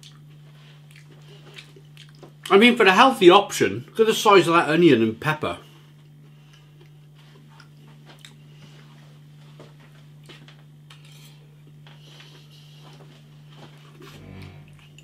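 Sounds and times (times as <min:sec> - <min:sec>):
faint chewing: 0:00.0 - 0:02.5, 0:06.0 - 0:08.9
steady low hum: 0:00.0 - 0:15.0.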